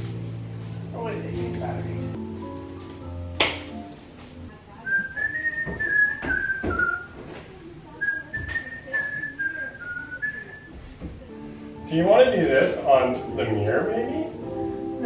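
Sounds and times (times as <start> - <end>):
person whistling a tune: 4.9 - 7.1, 8.0 - 10.8.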